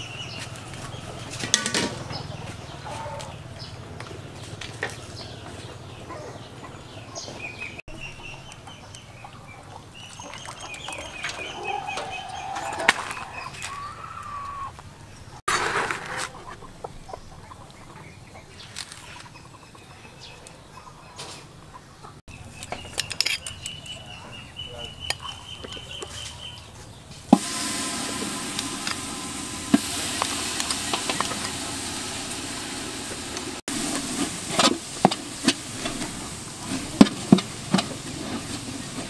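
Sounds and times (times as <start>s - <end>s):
chickens clucking: 0.0s - 14.9s, 16.0s - 27.0s
loud burst of noise: 27.3s - 37.6s.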